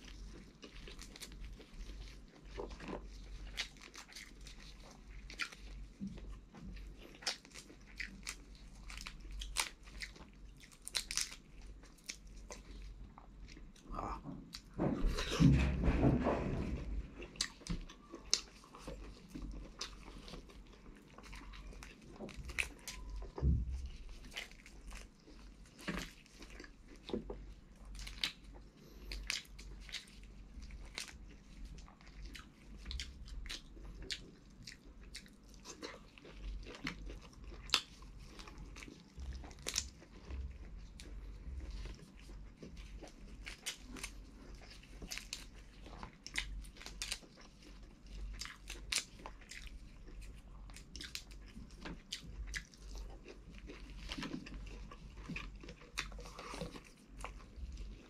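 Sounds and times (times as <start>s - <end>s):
chewing: 0.0s - 58.0s.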